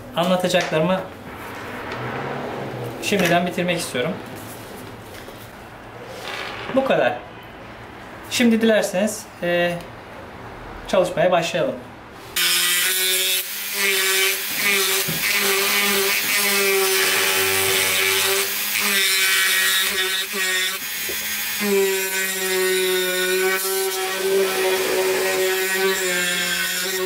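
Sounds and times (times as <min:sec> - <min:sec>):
rotary tool cutting wood: 0:12.4 - 0:27.0.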